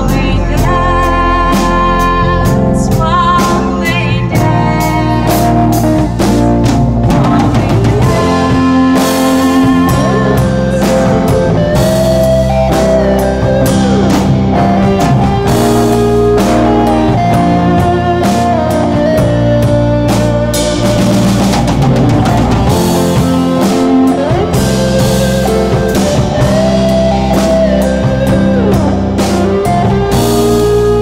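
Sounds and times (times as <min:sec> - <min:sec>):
drum kit: 0:00.0 - 0:31.0
electric guitar: 0:00.0 - 0:31.0
person singing: 0:00.0 - 0:31.0.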